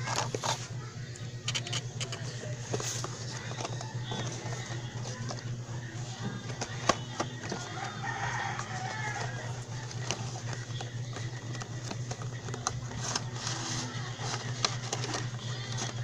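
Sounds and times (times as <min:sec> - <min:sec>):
steady low hum: 0:00.0 - 0:16.0
cardboard packaging clicks and rustles: 0:06.4 - 0:16.0.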